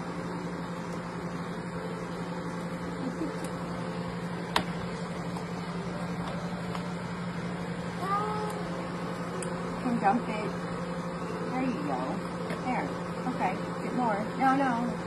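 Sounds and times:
kitchen appliance humming: 0.0s - 15.0s.

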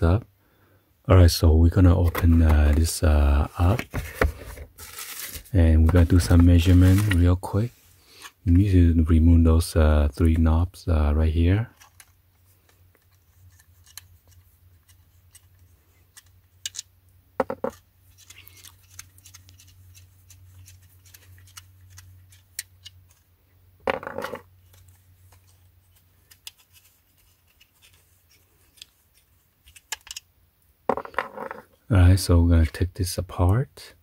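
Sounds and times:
small clicks and scratches: 11.7s - 16.9s, 17.6s - 23.3s, 24.6s - 30.3s.

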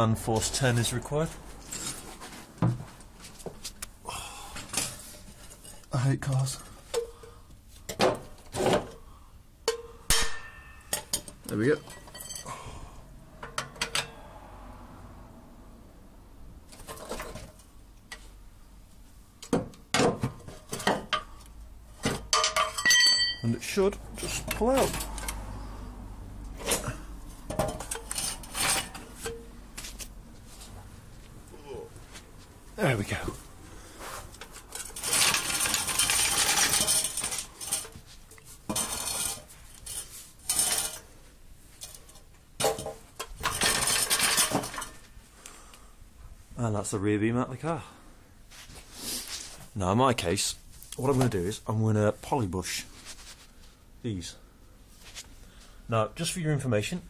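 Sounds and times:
metal clattering and scraping: 0.3s - 3.7s, 9.7s - 12.6s, 16.7s - 18.3s, 20.0s - 25.7s, 26.5s - 30.8s, 33.9s - 45.2s
metal knocks and clatter: 22.0s - 23.4s, 26.6s - 29.5s, 34.4s - 41.1s, 41.8s - 45.1s
scraping: 26.5s - 30.9s, 31.7s - 41.2s.

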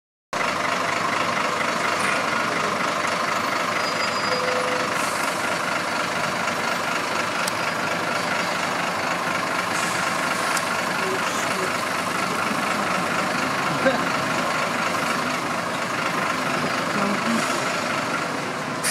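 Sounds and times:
bus diesel engine idling: 0.4s - 18.9s
street traffic: 0.4s - 18.9s
short faint beep: 3.8s - 4.9s.

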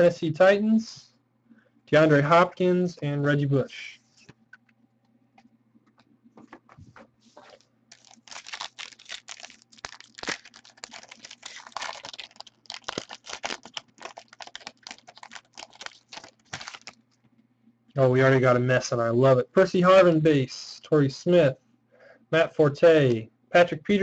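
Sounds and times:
foil wrapper crinkling: 7.4s - 17.1s.

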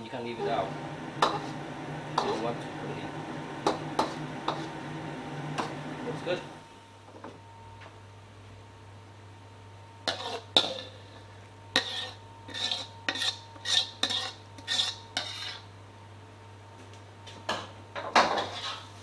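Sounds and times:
metal ladle scraping a wok: 10.1s - 10.9s, 11.8s - 15.7s.

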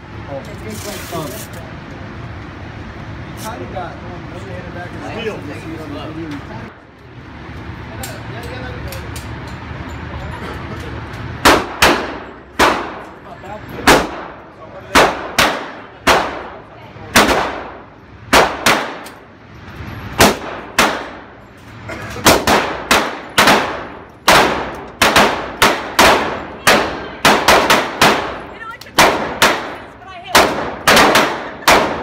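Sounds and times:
handgun shots: 18.3s - 19.2s, 20.2s - 21.2s, 22.2s - 29.8s, 30.4s - 32.0s.

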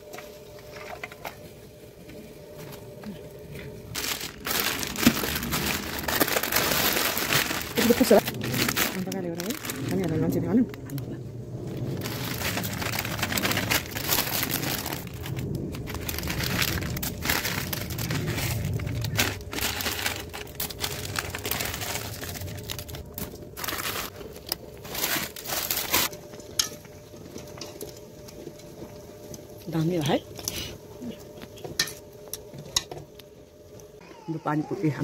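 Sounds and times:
plastic packets crinkling: 3.7s - 11.0s, 11.8s - 26.1s.

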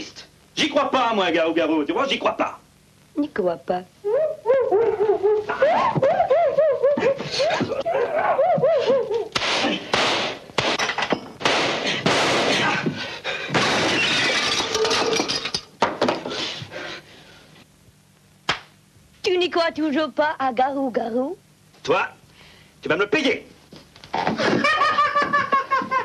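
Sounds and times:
objects crashing and shattering: 13.6s - 15.7s.

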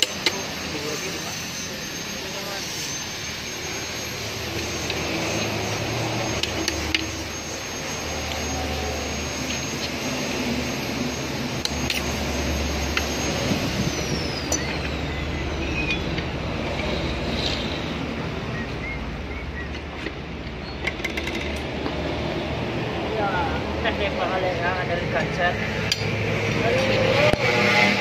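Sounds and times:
rushing noise with low hum: 2.7s - 28.0s
metal clicks of tools: 25.8s - 26.6s.

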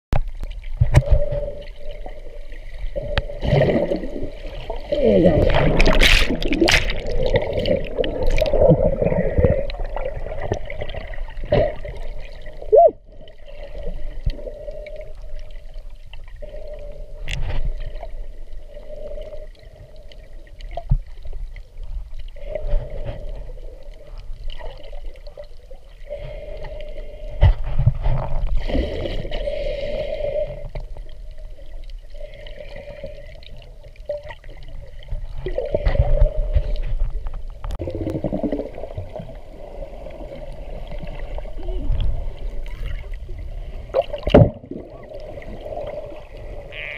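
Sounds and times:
underwater bubbles rushing: 0.2s - 46.9s
underwater moving water wash: 0.2s - 46.9s.

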